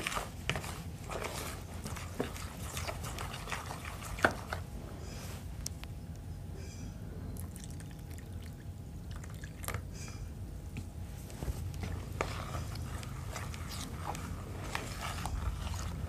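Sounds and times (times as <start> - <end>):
spoon stirring batter: 0.0 - 4.7, 11.7 - 16.0
steady low hum: 0.0 - 16.0.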